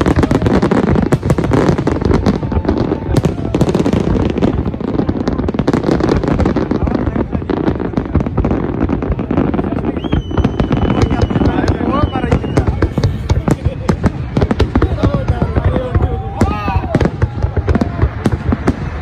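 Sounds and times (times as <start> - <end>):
fireworks bangs and crackles: 0.0 - 19.0
high whistle: 9.9 - 12.8.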